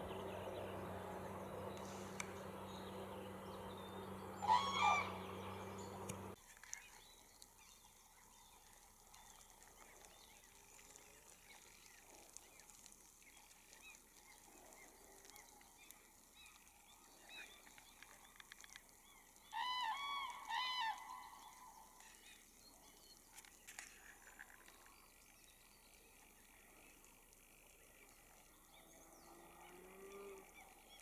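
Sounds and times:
cranes trumpeting: 0:00.0 - 0:06.4, 0:19.3 - 0:22.1.

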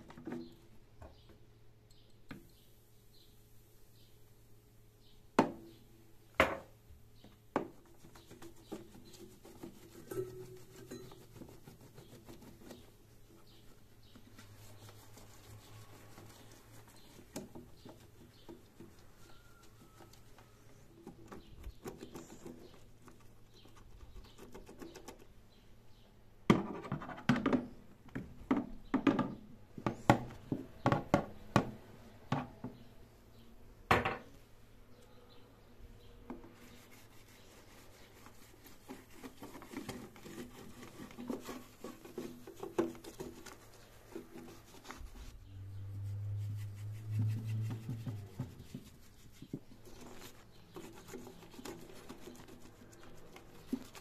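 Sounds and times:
sponge scrubbing metal: 0:07.8 - 0:19.9, 0:36.5 - 0:54.0.

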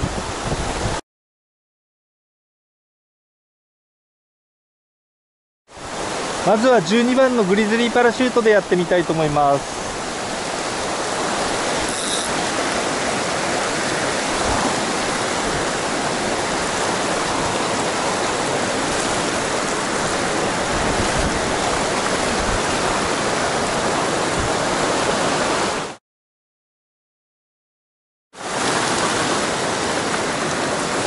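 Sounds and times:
stream rushing over rocks: 0:05.8 - 0:26.0, 0:28.4 - 0:31.0.

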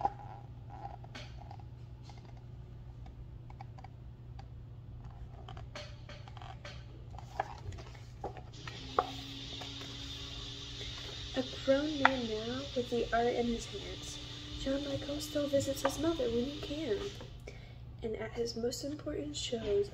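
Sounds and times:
low steady hum: 0:00.0 - 0:19.9
hiss: 0:08.6 - 0:17.3.

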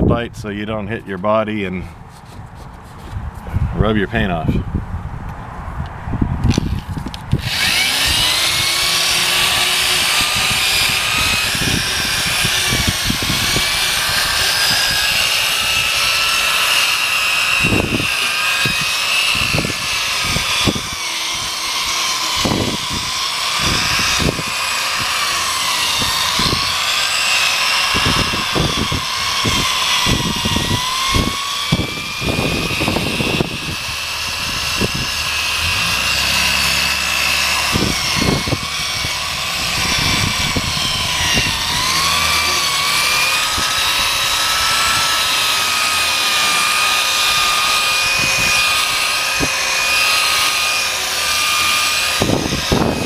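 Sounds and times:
sanding pad scuffing plastic: 0:02.1 - 0:03.3
electric drill motor whine: 0:06.5 - 0:53.0.

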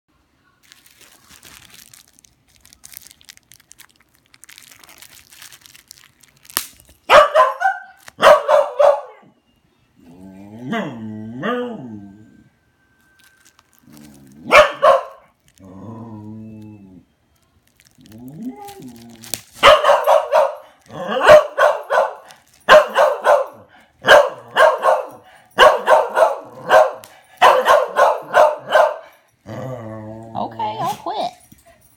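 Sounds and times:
bubble wrap snapping: 0:00.6 - 0:07.0, 0:07.9 - 0:08.2, 0:13.0 - 0:16.4, 0:17.3 - 0:20.0, 0:20.6 - 0:21.2, 0:22.2 - 0:22.8
bubble wrap crackling: 0:00.6 - 0:07.1, 0:07.9 - 0:08.2, 0:13.0 - 0:16.7, 0:17.3 - 0:23.1
dog barking: 0:07.1 - 0:09.4, 0:14.4 - 0:15.3, 0:19.6 - 0:29.2.

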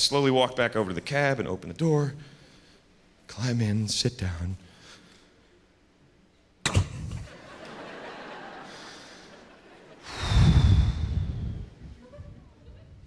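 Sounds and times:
door slam thud: 0:06.6 - 0:07.3
heavy sigh into microphone: 0:10.1 - 0:11.8.

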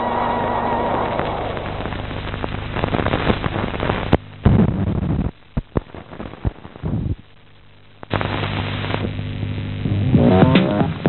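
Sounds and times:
faint crackle: 0:00.0 - 0:11.0
film soundtrack hum: 0:00.0 - 0:11.0
pops and clicks: 0:01.9 - 0:07.0.

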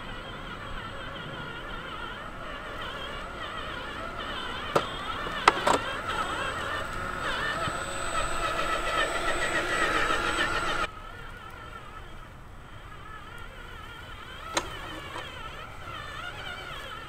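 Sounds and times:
toy truck motor whining: 0:00.0 - 0:17.0
sharp clicks and knocks: 0:04.6 - 0:06.2.

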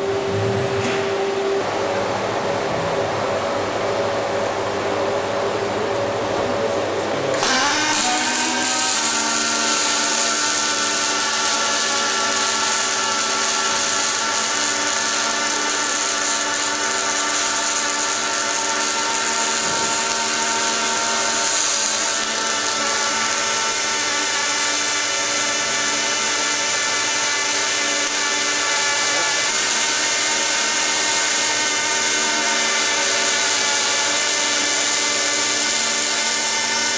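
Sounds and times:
arc welding hiss: 0:07.4 - 0:36.9.

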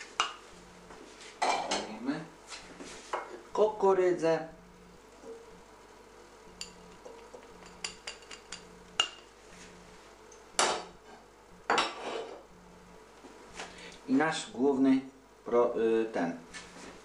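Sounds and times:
spoon clinking against glass dish: 0:06.6 - 0:09.2.

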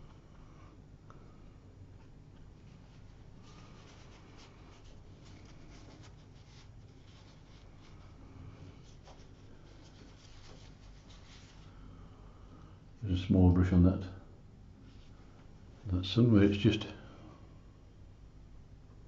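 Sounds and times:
low steady hum: 0:00.0 - 0:19.0
brush strokes on paper: 0:02.6 - 0:11.8.

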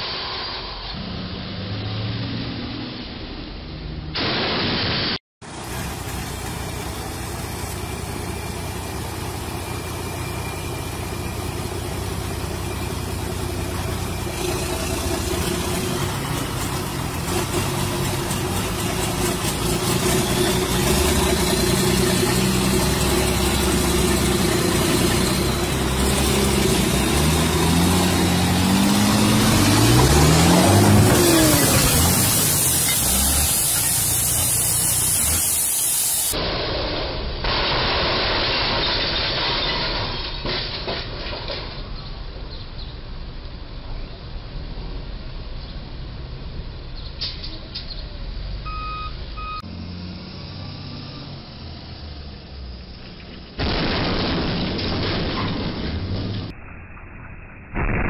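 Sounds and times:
truck diesel engine revving: 0:05.6 - 0:36.4, 0:49.4 - 0:52.8.

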